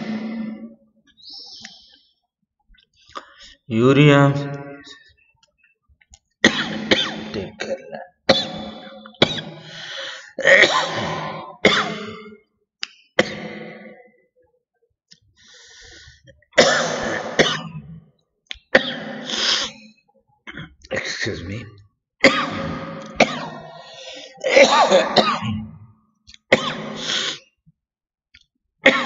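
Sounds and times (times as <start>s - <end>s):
man coughing: 6.4s - 9.6s, 10.4s - 12.3s, 16.6s - 17.8s, 22.2s - 25.8s.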